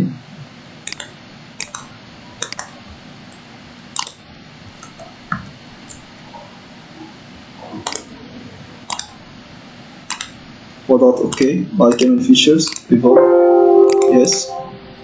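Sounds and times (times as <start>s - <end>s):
computer mouse clicking: 0.8s - 2.7s, 4.0s - 4.2s, 4.8s - 6.0s, 7.8s - 8.1s, 8.9s - 9.2s, 10.1s - 10.4s, 11.2s - 12.9s.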